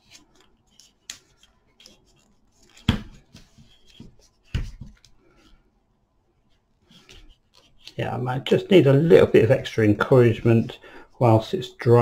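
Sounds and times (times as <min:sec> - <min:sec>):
tape crackling and rustling: 0:00.0 - 0:05.5.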